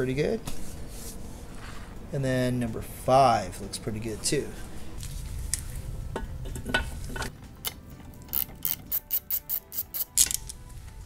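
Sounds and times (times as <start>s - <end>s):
ratchet wrench clicking: 7.6s - 10.5s.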